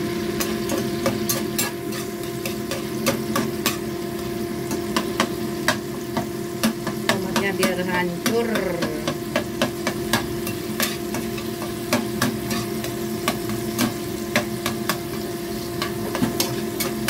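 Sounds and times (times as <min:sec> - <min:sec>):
food sizzling in oil: 0:00.0 - 0:17.0
range hood fan humming: 0:00.0 - 0:17.0
metal spatula scraping frying pan: 0:00.4 - 0:08.4, 0:09.1 - 0:17.0.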